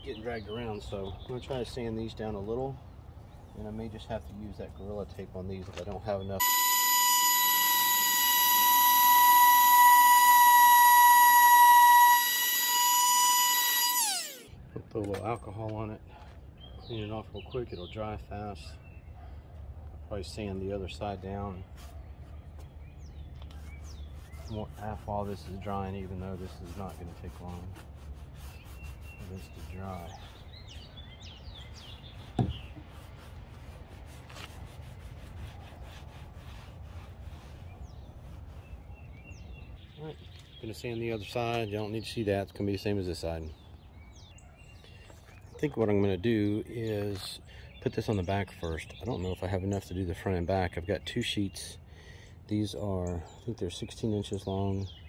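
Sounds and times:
sanding pad rasping on plastic: 6.4s - 14.4s, 23.5s - 30.5s, 32.2s - 38.9s
palm sander motor whine: 6.4s - 14.5s
cloth wiping kayak hull: 23.5s - 30.4s, 32.2s - 38.9s.

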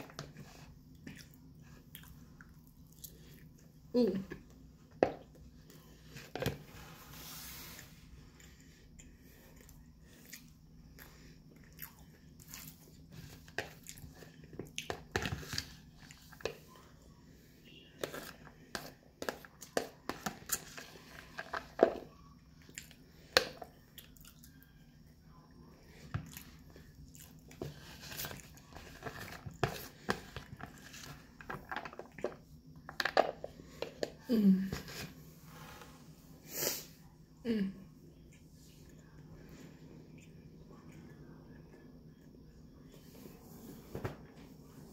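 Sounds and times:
chewing: 0.9s - 3.7s, 8.5s - 13.0s, 23.7s - 24.6s, 26.2s - 27.6s.

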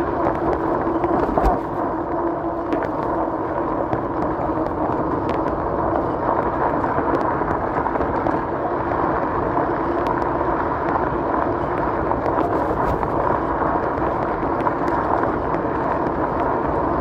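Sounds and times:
steady motor hum: 0.0s - 17.0s.

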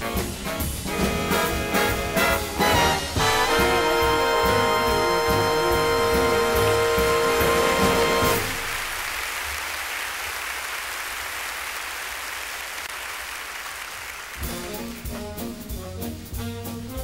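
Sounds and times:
swing big band with brass: 0.0s - 9.0s, 14.3s - 17.0s
audience applauding: 2.7s - 15.2s.

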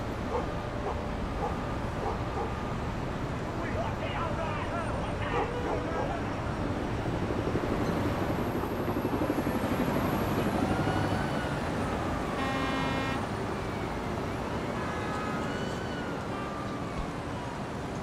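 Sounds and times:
traffic rumble: 0.0s - 18.0s
car horns honking: 12.3s - 13.4s.

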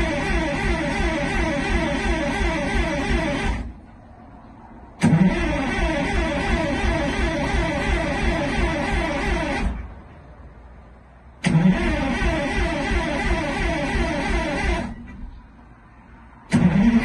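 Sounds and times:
diesel bus engine pulsing: 0.0s - 17.0s
engine bang: 5.0s - 9.8s, 11.4s - 15.4s, 16.5s - 17.0s.

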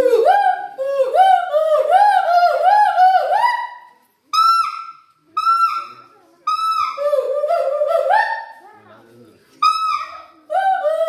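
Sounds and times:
gibbon whooping hoots: 0.0s - 8.6s.

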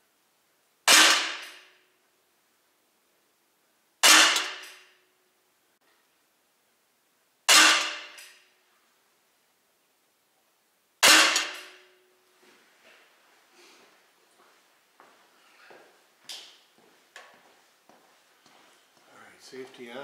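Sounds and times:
air pistol shots: 0.8s - 1.8s, 4.0s - 5.0s, 7.5s - 8.4s, 11.0s - 11.9s.

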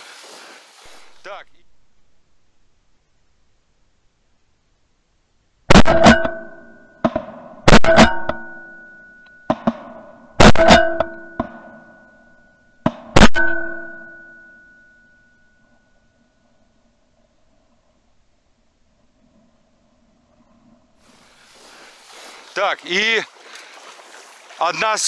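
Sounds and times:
shotgun shots: 5.7s - 8.4s, 9.5s - 11.6s.

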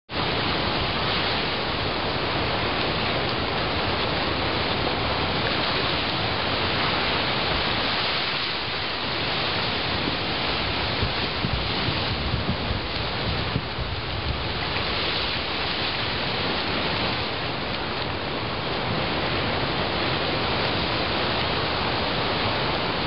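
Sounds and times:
waves breaking on pebble beach: 0.1s - 23.0s.

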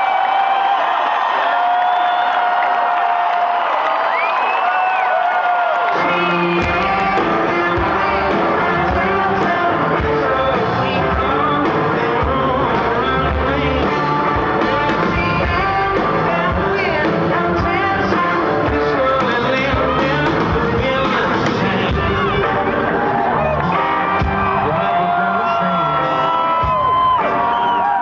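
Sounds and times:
electric guitar: 5.8s - 28.0s
live rock band playing: 5.8s - 28.0s
steady drum beat: 6.0s - 25.1s, 26.2s - 27.8s.

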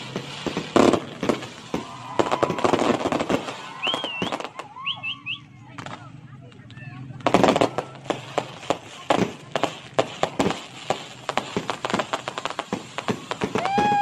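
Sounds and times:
fireworks bangs and crackles: 0.0s - 14.0s.

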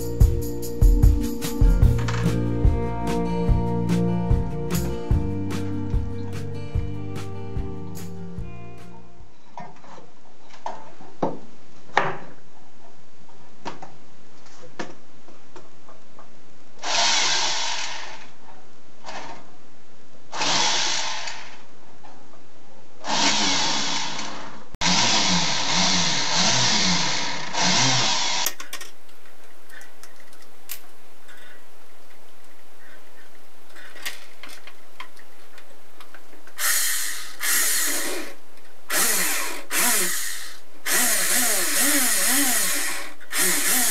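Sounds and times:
rotary tool grinding brass tube: 36.7s - 43.9s.

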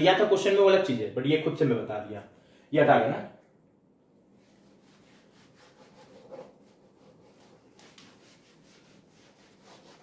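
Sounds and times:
rubbing strokes on a board: 4.4s - 10.0s.

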